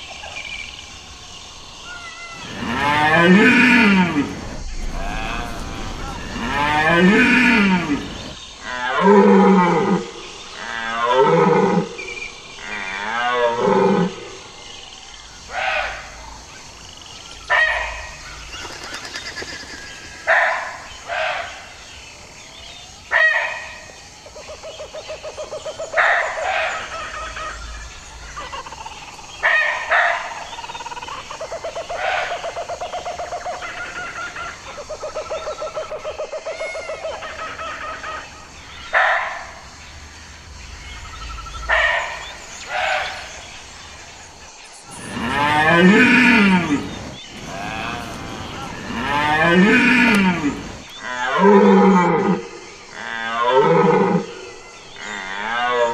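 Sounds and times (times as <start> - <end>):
fast pulsing deer call: 2.1 - 8.4, 44.9 - 50.8
deer stag roaring: 2.4 - 10.0, 44.9 - 52.4.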